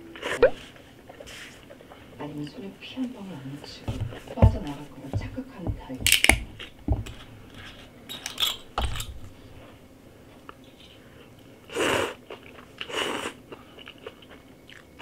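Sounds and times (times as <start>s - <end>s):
quiet chewing: 12.2s - 15.0s.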